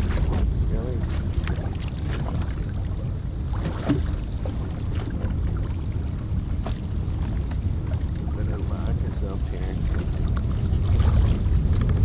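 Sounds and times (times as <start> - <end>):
water lapping against boat: 0.0 - 12.0
wind rumble: 0.0 - 12.0.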